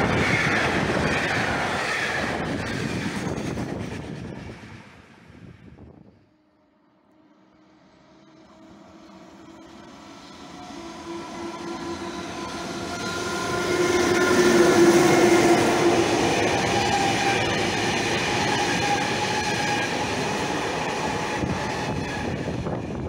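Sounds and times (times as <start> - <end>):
freight wagons rumbling on rails: 0.0 - 5.9, 8.0 - 23.0
locomotive humming: 0.0 - 23.0.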